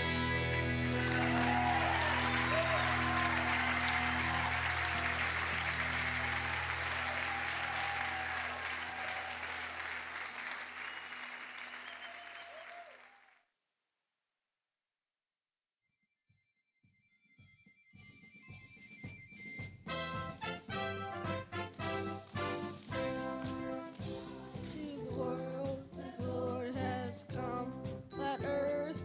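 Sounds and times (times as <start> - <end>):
congregation applauding: 0.1 - 13.4, 19.9 - 24.5
cheers: 0.3 - 13.4.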